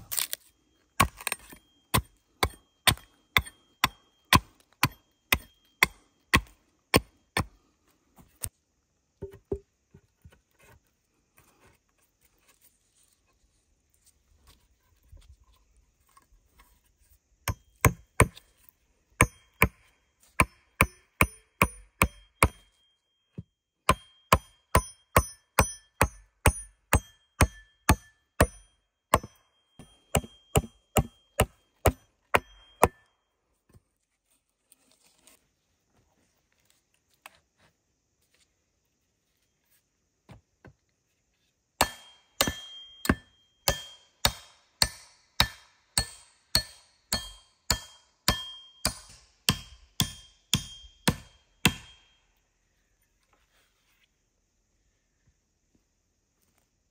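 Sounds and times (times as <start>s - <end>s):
axe striking wood: 1.0s - 7.5s, 17.4s - 18.4s, 19.2s - 19.8s, 20.4s - 22.7s, 23.9s - 33.0s, 41.8s - 52.0s.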